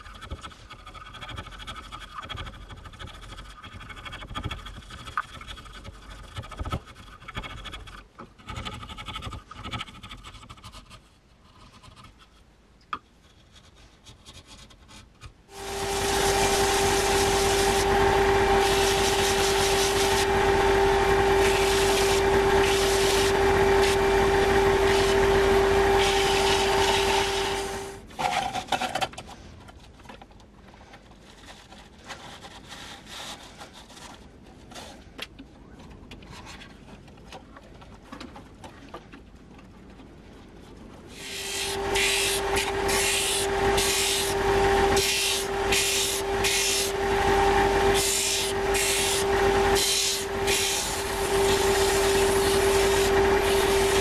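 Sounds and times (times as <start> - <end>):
chisel scraping wood: 0.0 - 29.0, 30.9 - 35.0
belt sander whining: 15.5 - 28.1, 41.1 - 54.0.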